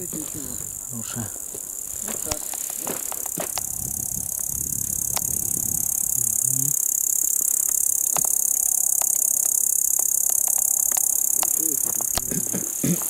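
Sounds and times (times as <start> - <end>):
insects chirring: 0.0 - 13.0
faint clicks: 2.3 - 3.7, 5.1 - 5.6, 7.5 - 9.5, 10.2 - 13.0
low voice murmur: 11.5 - 13.0.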